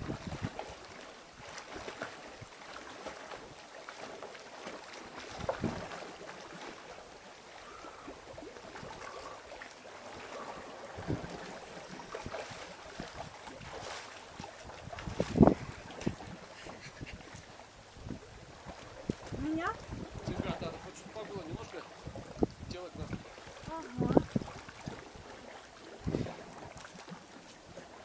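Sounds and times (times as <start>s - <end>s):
wind buffeting microphone: 0.0s - 0.6s, 5.3s - 5.9s, 10.4s - 25.3s, 26.0s - 26.8s
sea water washing against rocks: 0.0s - 28.0s.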